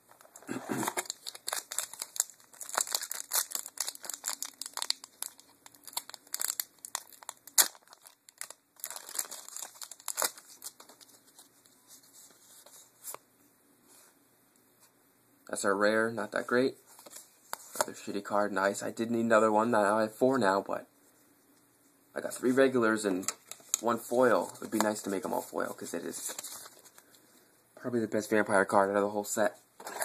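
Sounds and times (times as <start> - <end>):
foil wrapper crinkling and tearing: 0.2 - 11.5.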